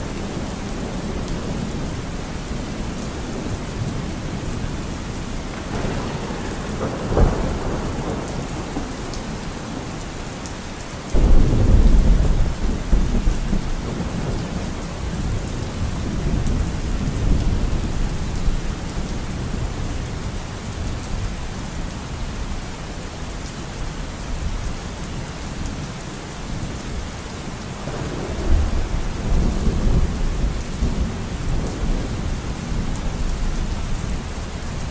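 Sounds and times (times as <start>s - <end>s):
steady rain: 0.0s - 34.9s
thunder rumbling: 0.2s - 10.0s, 11.1s - 19.8s, 27.8s - 34.9s
thunder crack: 5.7s - 8.9s, 11.2s - 14.2s.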